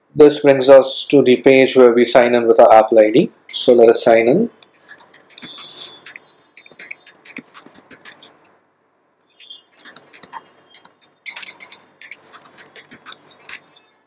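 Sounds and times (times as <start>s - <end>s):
typing on computer keyboard: 4.8s - 8.5s, 9.8s - 13.6s.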